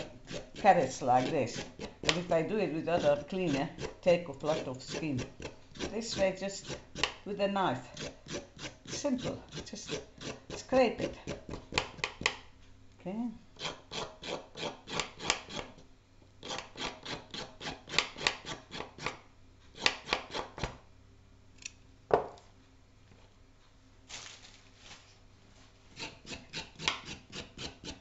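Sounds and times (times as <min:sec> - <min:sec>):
knife scraping carrot: 0:00.0 - 0:12.3, 0:13.6 - 0:15.8, 0:16.4 - 0:19.2, 0:26.0 - 0:28.0.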